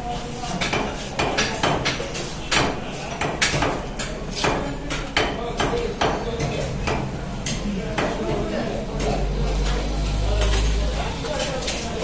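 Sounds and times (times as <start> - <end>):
knife chopping on wooden block: 0.6 - 7.1.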